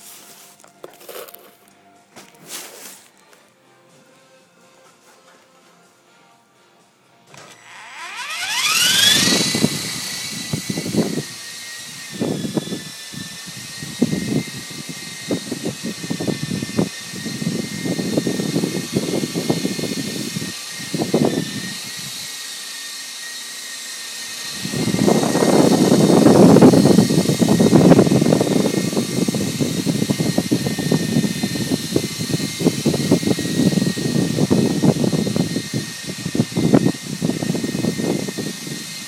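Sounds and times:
helicopter motor whine: 7.3 - 39.0
rotors fluttering: 7.8 - 22.3.

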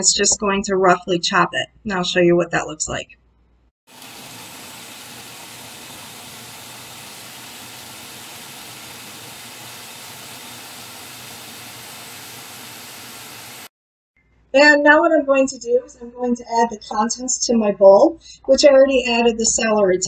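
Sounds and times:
food processor whirring: 3.9 - 13.7.

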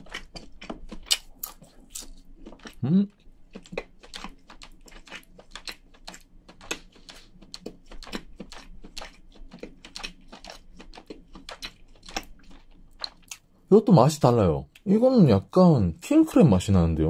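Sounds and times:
person chewing with wet smacks: 0.0 - 13.5.

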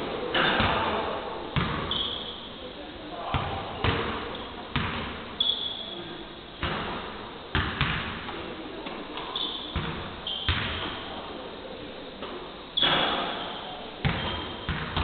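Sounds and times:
basketballs bouncing on court: 1.6 - 2.0, 3.3 - 5.2, 6.6 - 8.4, 9.7 - 10.9, 14.0 - 15.0
shoe squeaks: 1.8 - 2.5, 5.4 - 6.0, 9.3 - 11.0, 12.8 - 13.6, 14.2 - 14.7.

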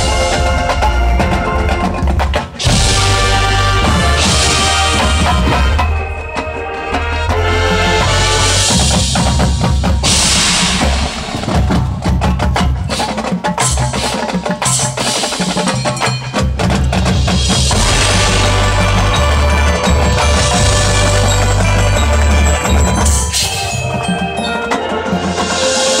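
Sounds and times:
marching band playing: 0.0 - 26.0
rapid percussion hits: 0.0 - 26.0
cymbal crashes: 10.0 - 12.0, 17.4 - 24.0.

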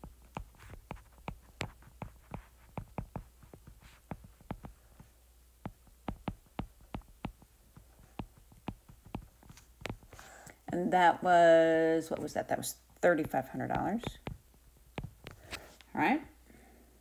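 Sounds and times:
stylus clicking on tablet screen: 0.1 - 5.0, 5.7 - 10.2, 12.1 - 15.6.

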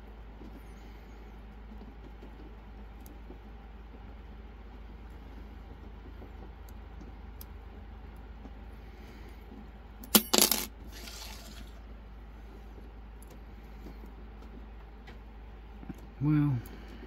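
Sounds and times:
metal tools clattering onto surface: 10.2 - 11.8.

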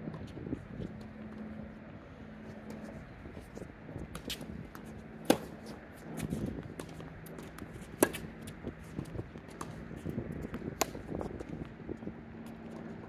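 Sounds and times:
low steady hum: 0.0 - 13.0
racket striking tennis ball: 4.1 - 9.8, 10.4 - 11.4.

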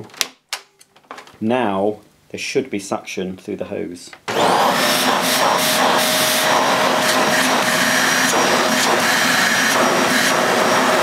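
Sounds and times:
vacuum cleaner running: 4.3 - 11.0.

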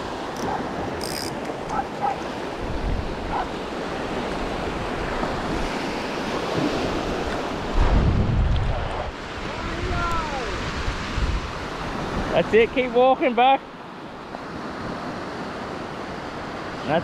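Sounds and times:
wind buffeting microphone: 0.0 - 12.4
ocean surf washing onto beach: 0.0 - 17.0.

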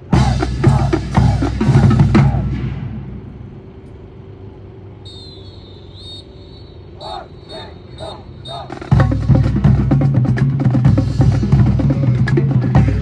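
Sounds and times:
marching band playing: 0.0 - 3.8, 6.8 - 13.0.

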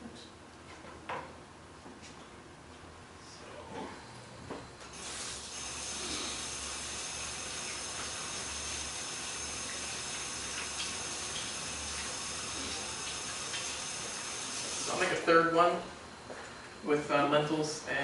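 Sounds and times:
tap water running into sink: 6.7 - 14.9.

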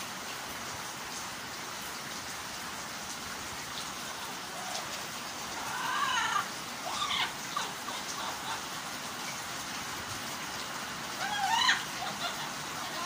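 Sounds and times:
parrot calls: 4.5 - 8.6, 11.2 - 13.0.

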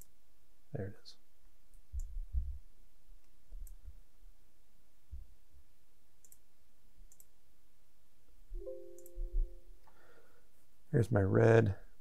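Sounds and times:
soft low thumps: 2.0 - 2.6
steady background hiss: 2.6 - 12.0
computer mouse clicking: 3.2 - 3.8, 6.2 - 6.4, 7.1 - 7.3.

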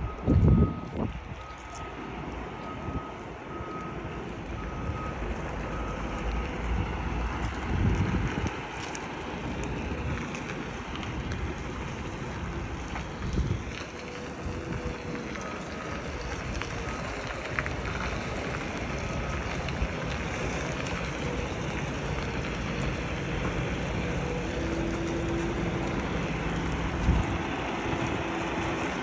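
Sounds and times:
wind buffeting microphone: 0.0 - 5.8, 6.4 - 29.0
reversing beeper: 0.0 - 7.2, 14.1 - 19.6
diesel truck engine running: 0.0 - 29.0.

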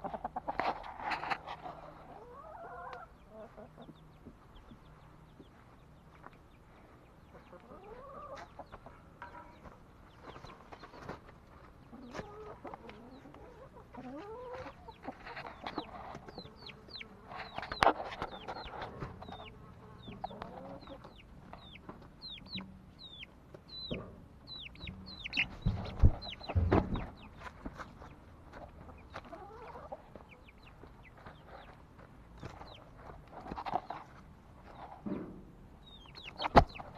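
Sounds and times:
hens clucking: 0.0 - 36.9
loud thumps: 25.4 - 27.2.

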